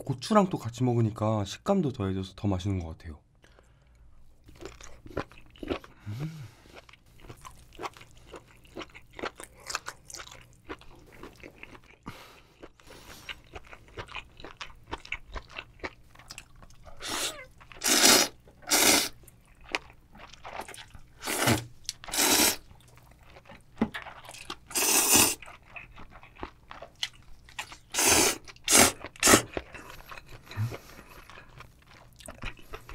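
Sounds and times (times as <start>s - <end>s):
wet chewing: 4.4s - 32.9s
slurping noodles: 17.0s - 19.2s, 21.2s - 22.6s, 24.7s - 25.4s, 27.9s - 29.5s.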